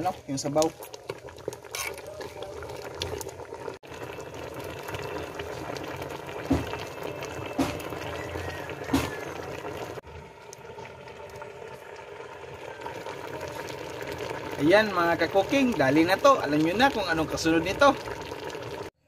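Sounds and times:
sauce boiling and bubbling: 0:00.0 - 0:19.0.

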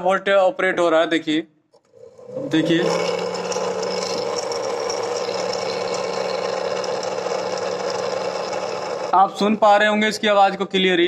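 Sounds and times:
cooling fan buzzing and rattling: 0:02.2 - 0:09.6.

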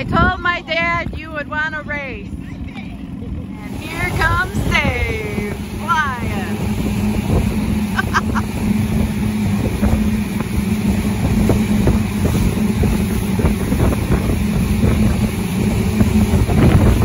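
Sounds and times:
motorboat engine humming: 0:00.0 - 0:17.0
water noise: 0:00.0 - 0:17.0
wind buffeting microphone: 0:00.0 - 0:17.0.

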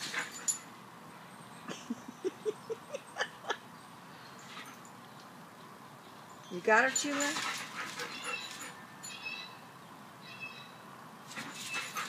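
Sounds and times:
dog yipping and grunting: 0:07.5 - 0:08.8, 0:11.3 - 0:12.0.

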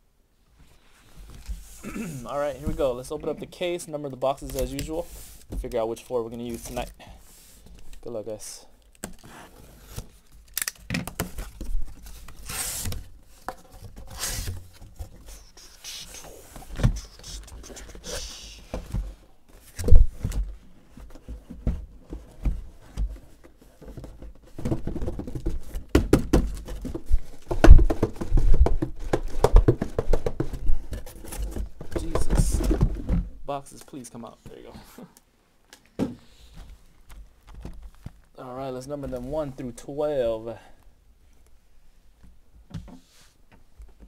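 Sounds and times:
cardboard rattling: 0:19.0 - 0:33.3.

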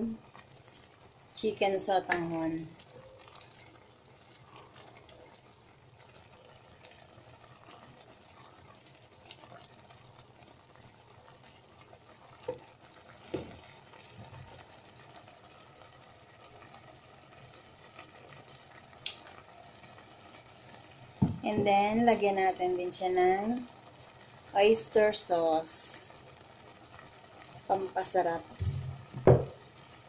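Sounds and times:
broth bubbling softly: 0:02.2 - 0:21.2.

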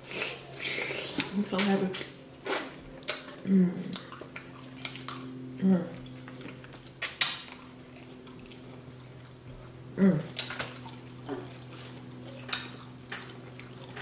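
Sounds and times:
lip smacking and chewing: 0:00.0 - 0:14.0
low hum: 0:00.0 - 0:14.0
wet smack: 0:06.9 - 0:07.6.

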